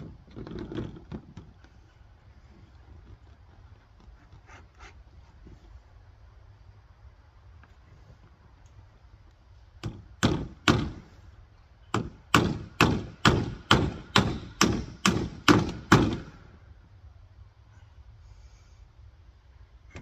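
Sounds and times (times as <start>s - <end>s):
hammer nailing roofing sheets: 9.8s - 11.2s, 11.8s - 16.6s.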